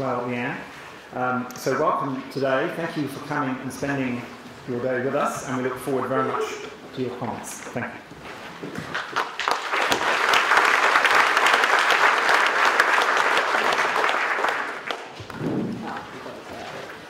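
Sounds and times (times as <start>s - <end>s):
audience applauding: 8.8s - 15.4s.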